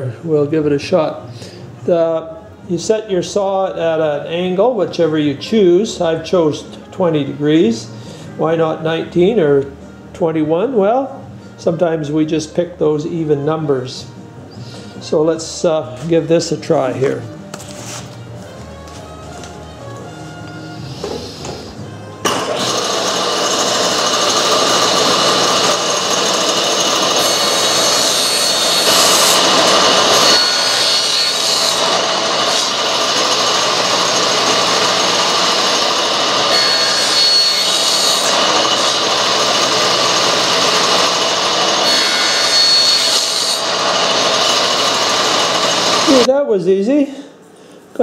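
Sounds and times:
table saw cutting wood: 20.4 - 46.3.

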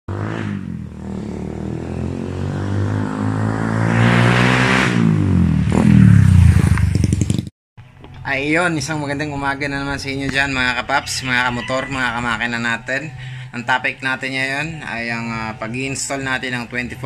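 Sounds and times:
motorcycle engine passing by: 0.1 - 7.5.

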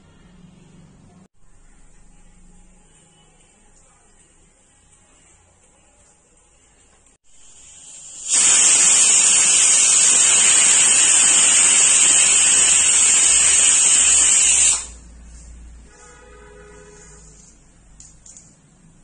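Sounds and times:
loud steady hiss: 7.3 - 15.6.

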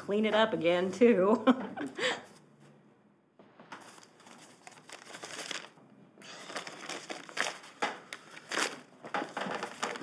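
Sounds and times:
paper crinkling: 3.8 - 10.0.

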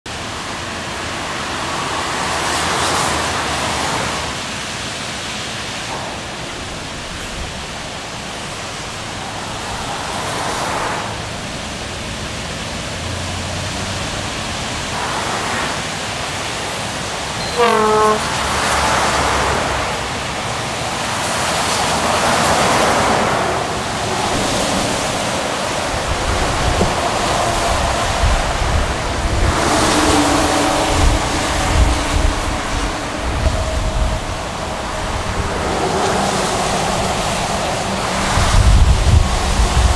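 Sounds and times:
tyres hissing on wet road: 0.1 - 39.9
vehicle horn: 17.4 - 19.3.

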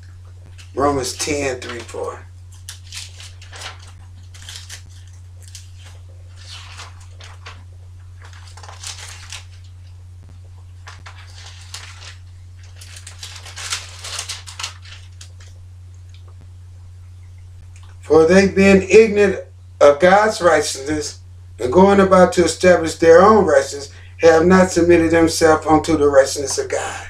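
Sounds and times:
steady low hum: 0.0 - 27.0
thin pages rustling: 0.5 - 10.0, 10.7 - 15.6.

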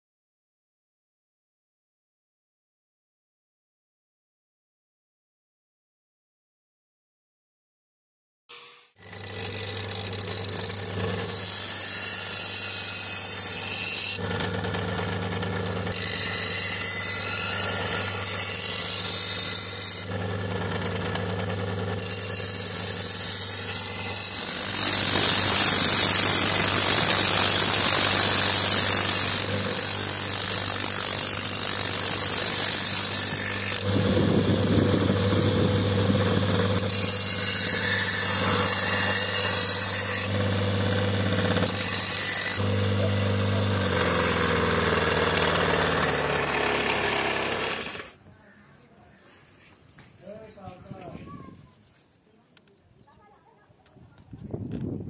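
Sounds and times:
blade grinding on wheel: 8.5 - 48.2
grinding wheel motor hum: 9.0 - 48.2.

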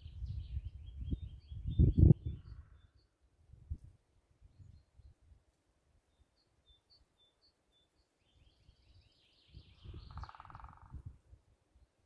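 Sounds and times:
bird chirps: 0.0 - 3.2, 6.1 - 11.0
wind rumbling on microphone: 0.0 - 5.4, 8.8 - 11.5
bird trill: 6.4 - 11.0.

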